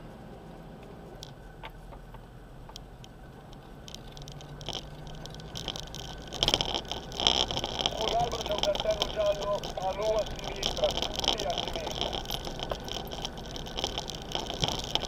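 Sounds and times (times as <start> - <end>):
low engine drone: 0.0 - 15.0
clicks and rattles over stones: 1.2 - 15.0.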